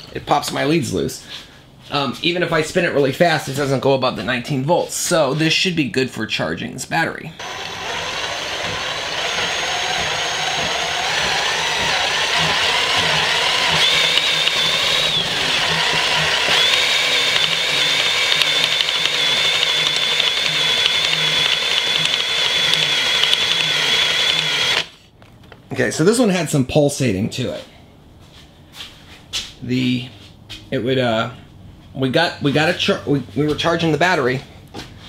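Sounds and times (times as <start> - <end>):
motor whine: 7.4 - 25.0.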